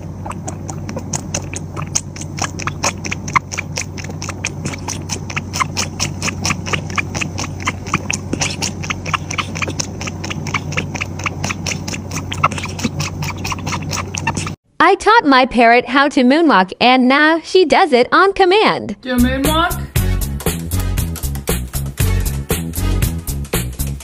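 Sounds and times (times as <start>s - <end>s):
cat sucking from bottle: 0.0s - 14.6s.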